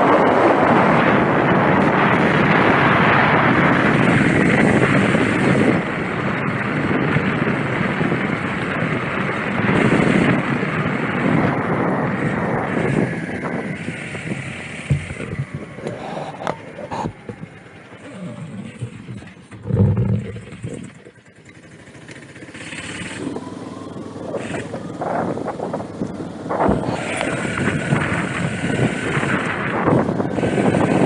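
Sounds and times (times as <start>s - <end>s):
wind on microphone: 0.0s - 21.2s, 23.2s - 31.0s.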